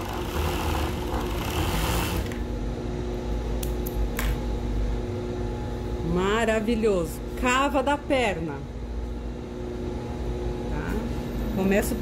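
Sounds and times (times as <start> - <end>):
sewing machine stitching: 0.0 - 2.4
sewing machine motor humming: 0.0 - 2.5.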